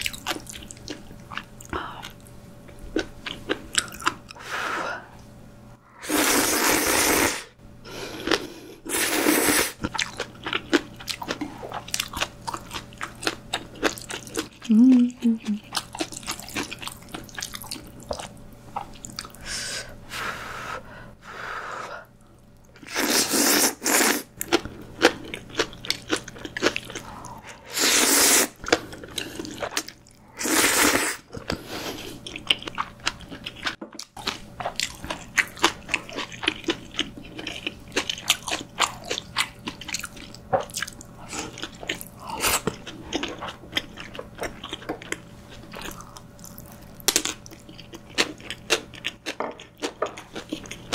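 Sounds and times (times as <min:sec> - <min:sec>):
wet chewing and crunching: 0:00.0 - 0:04.4, 0:09.8 - 0:19.4, 0:23.8 - 0:27.6, 0:28.5 - 0:30.2, 0:31.2 - 0:50.9
noodles slurped: 0:22.8 - 0:24.3, 0:26.6 - 0:32.3.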